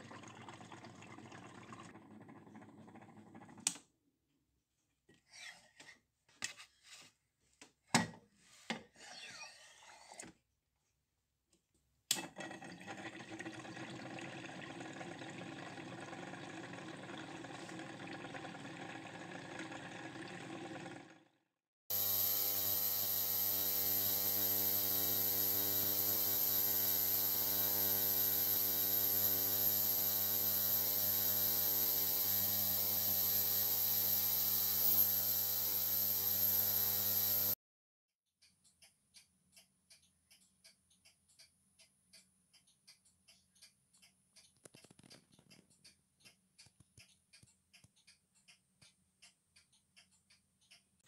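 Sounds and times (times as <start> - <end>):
cleaning machine motor running: 21.9 - 37.6
ultrasonic cleaner humming: 21.9 - 37.6.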